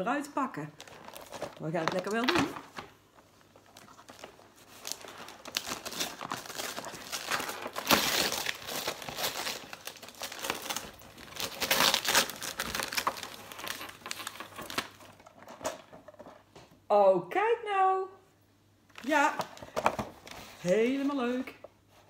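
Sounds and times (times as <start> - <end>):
wrapping paper crinkling: 0.8 - 15.6.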